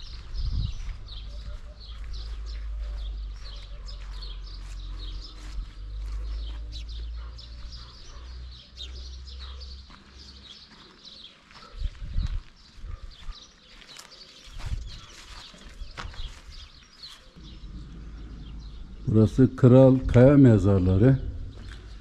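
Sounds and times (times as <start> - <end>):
wind rumble on microphone: 0.0 - 4.2, 11.8 - 13.3, 14.6 - 16.7, 17.4 - 22.0
small birds chirping: 0.0 - 22.0.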